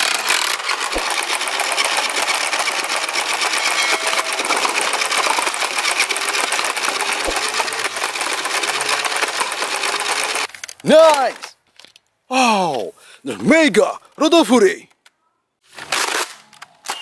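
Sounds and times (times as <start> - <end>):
toy blaster motor rattling: 0.0 - 10.9.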